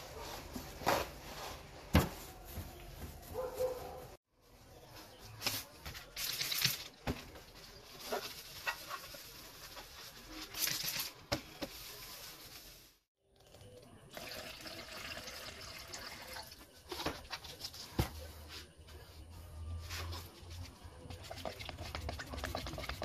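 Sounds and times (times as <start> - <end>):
liquid pouring into plastic cup: 13.4 - 16.6.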